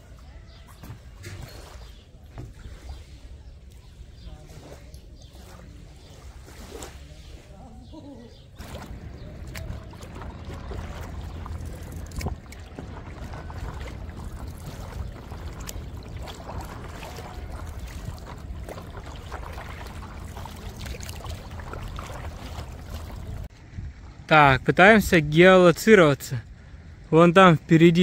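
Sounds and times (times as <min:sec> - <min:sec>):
water splashing around paddle: 0:00.6 - 0:07.6, 0:08.6 - 0:23.5
wind rumble on microphone: 0:08.6 - 0:24.3.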